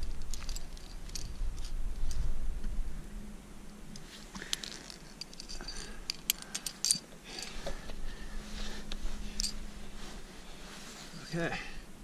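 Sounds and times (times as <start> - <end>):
carabiners clicking and clinking: 0.0 - 2.2, 4.4 - 7.8, 9.3 - 9.6
soft rustling: 3.9 - 11.9.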